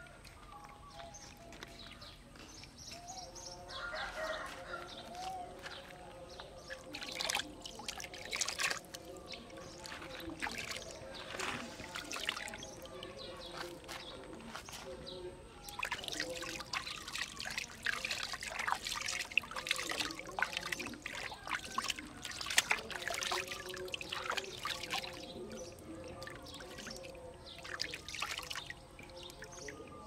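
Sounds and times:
bath water pouring and splashing: 0:06.5 - 0:13.9, 0:15.7 - 0:30.0.

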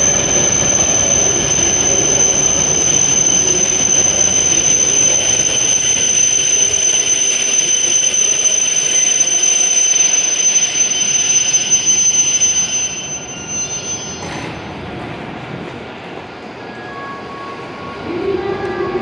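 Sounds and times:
high steady squeal: 0:00.0 - 0:14.8
train rolling to a stop: 0:00.0 - 0:19.0.

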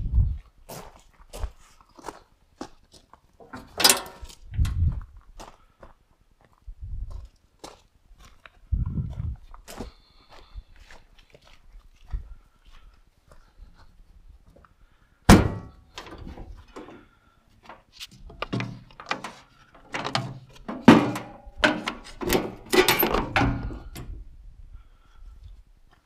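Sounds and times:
knocks and clunks: 0:03.4 - 0:05.0, 0:15.3 - 0:24.2.

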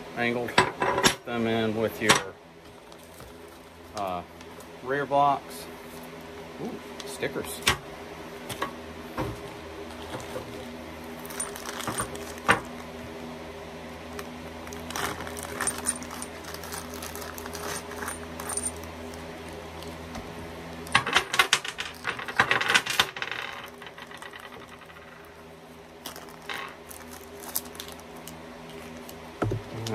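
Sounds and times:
metal parts rattling in a box: 0:11.2 - 0:12.8, 0:14.7 - 0:19.2, 0:20.9 - 0:25.3.

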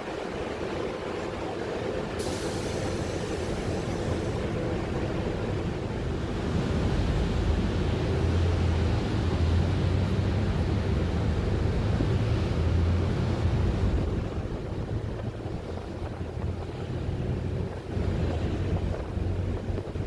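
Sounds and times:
moving vehicle rumble: 0:00.0 - 0:20.0.

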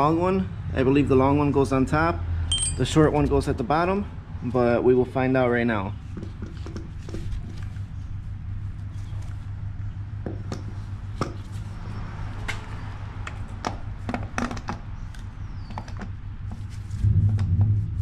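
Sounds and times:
low rumble: 0:17.0 - 0:18.0
steady low hum: 0:17.0 - 0:18.0.

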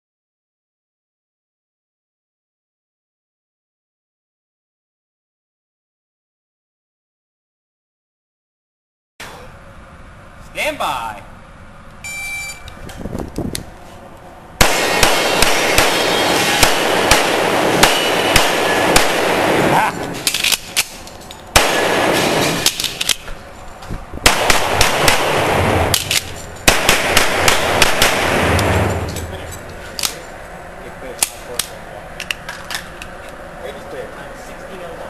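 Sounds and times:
handgun shots echoing indoors: 0:14.6 - 0:20.9, 0:21.6 - 0:23.2, 0:24.2 - 0:29.3.

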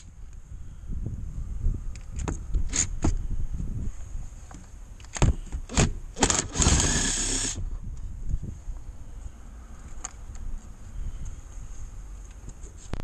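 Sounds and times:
cordless drill bursts and clicks: 0:05.7 - 0:07.6
drill motor running: 0:06.2 - 0:07.6.

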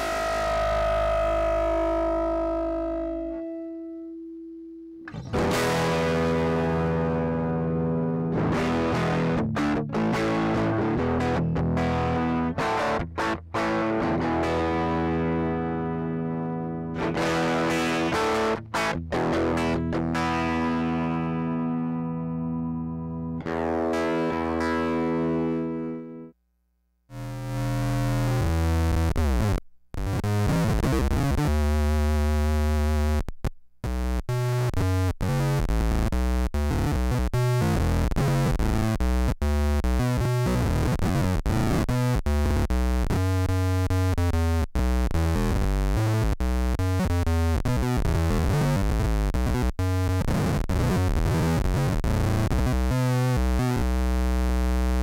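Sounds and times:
synth-like electric guitar: 0:00.0 - 0:26.3.

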